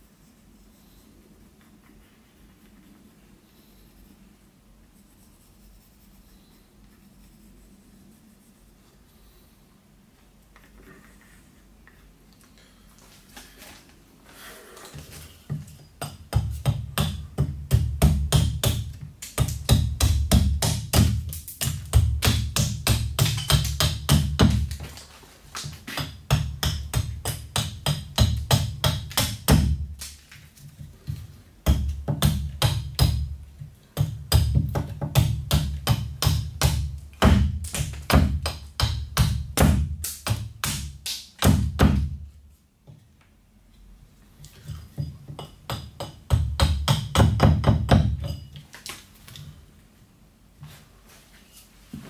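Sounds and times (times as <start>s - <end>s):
axe chopping wood: 16.0s - 30.2s, 34.0s - 42.2s.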